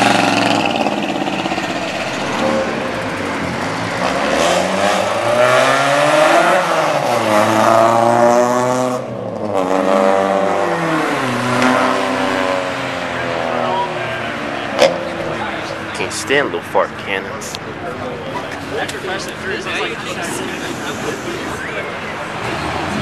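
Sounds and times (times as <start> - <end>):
cars accelerating past: 0.0 - 16.2, 20.1 - 23.0
loud car exhaust: 0.0 - 16.7.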